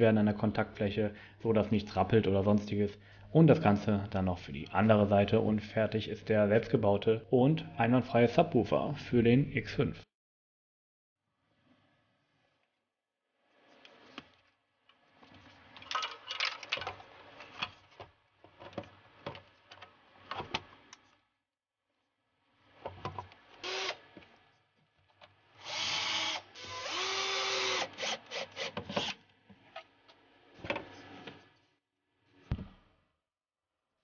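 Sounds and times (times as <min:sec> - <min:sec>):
cordless drill-driver running: 0:23.6 - 0:24.0, 0:25.6 - 0:29.2
knock: 0:32.5 - 0:32.8.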